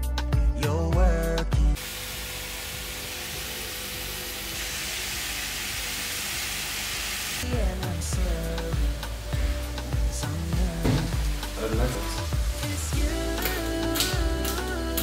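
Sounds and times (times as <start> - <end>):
background music: 0.0 - 15.0
vegetables sizzling in a frying pan: 1.8 - 15.0.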